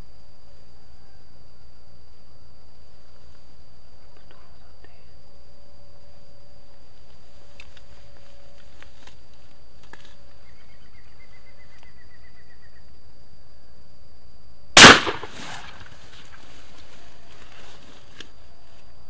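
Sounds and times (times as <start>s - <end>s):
shotgun shot: 14.8s - 15.8s.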